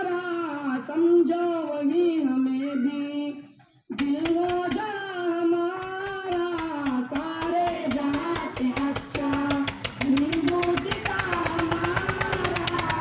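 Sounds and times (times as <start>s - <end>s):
sharp percussive clicks: 3.9s - 5.0s, 5.7s - 13.0s
group singing in unison: 6.2s - 13.0s.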